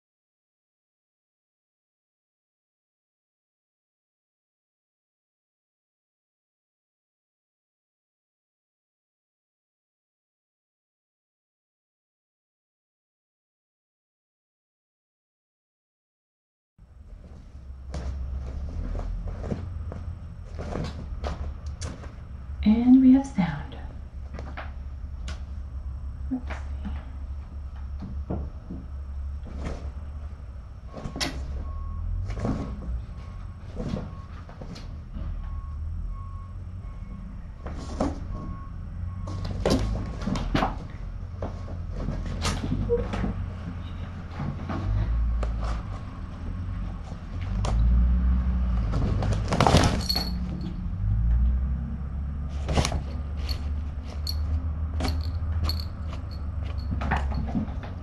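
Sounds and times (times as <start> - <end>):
steady low hum: 16.8 - 58.0.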